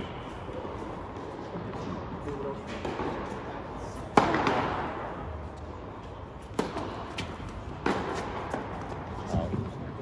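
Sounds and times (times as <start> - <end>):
tennis racket hitting ball: 4.1 - 5.0, 6.4 - 9.0.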